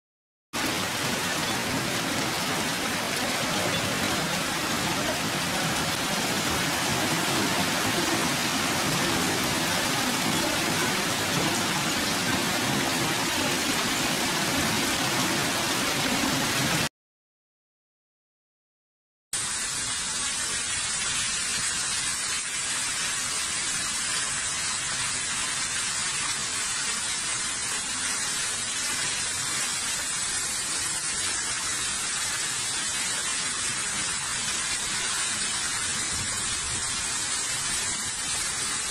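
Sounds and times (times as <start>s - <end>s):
heavy hail and rain pelting: 0.6s - 16.9s.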